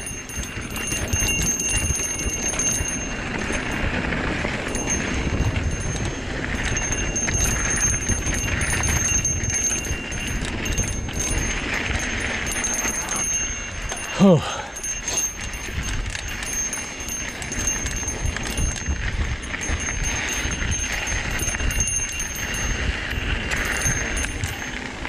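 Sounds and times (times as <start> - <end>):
bicycle freehub ticking buzz: 0.0 - 25.0
wind buffeting microphone: 0.0 - 25.0.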